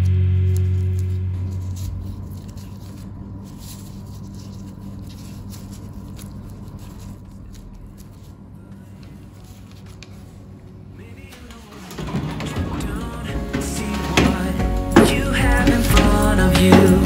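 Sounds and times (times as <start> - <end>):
plastic gloves crinkling: 0.0 - 16.8
low steady hum: 0.0 - 17.0
background music: 11.0 - 17.0.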